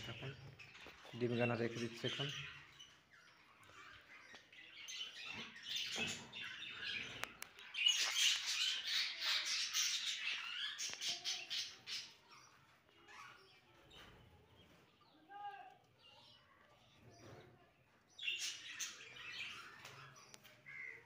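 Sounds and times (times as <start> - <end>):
budgerigars chattering and squawking: 0.0 - 12.5.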